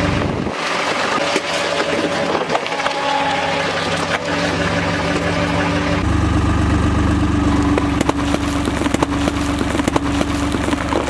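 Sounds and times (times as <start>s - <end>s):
road roller engine running: 0.0s - 11.0s
watermelons cracking: 7.6s - 11.0s.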